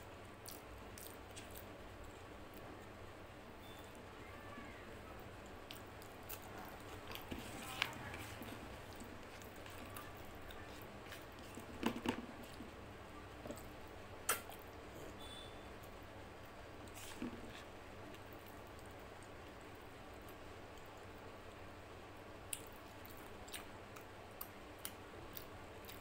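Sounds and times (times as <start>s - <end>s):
chewing: 5.4s - 11.8s, 22.5s - 26.0s.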